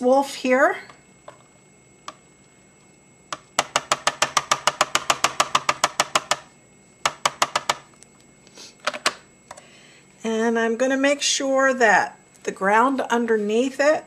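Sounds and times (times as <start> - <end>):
ink pad tapping rubber stamp: 3.3 - 7.9.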